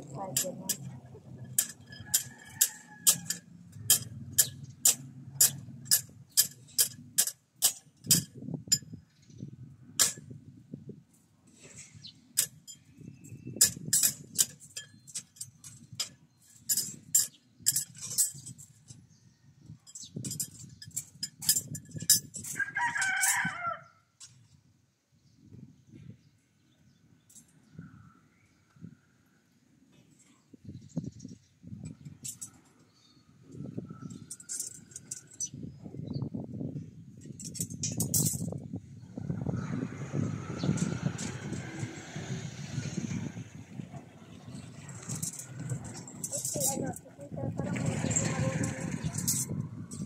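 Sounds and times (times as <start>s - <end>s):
sharp clicks on steel rebar: 0.4s - 8.8s, 10.0s - 10.3s
rooster crowing: 2.0s - 3.4s, 22.6s - 24.0s.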